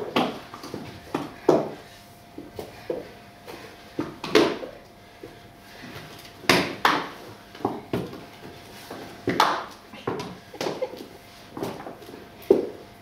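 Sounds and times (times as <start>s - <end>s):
shoes knocking on hard floor: 6.5s - 8.2s.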